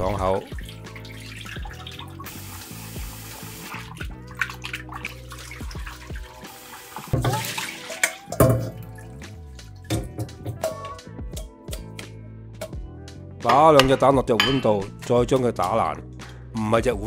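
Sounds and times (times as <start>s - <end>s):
background music: 0.0s - 17.0s
splashing and knocks: 3.6s - 10.8s
tap running into steel bowl: 7.0s - 8.9s.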